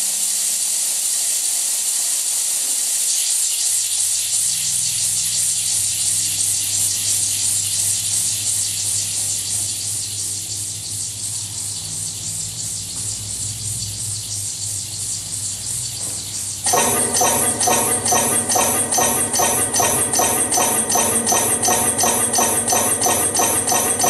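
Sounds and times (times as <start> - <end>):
low tone: 16.7 - 24.0.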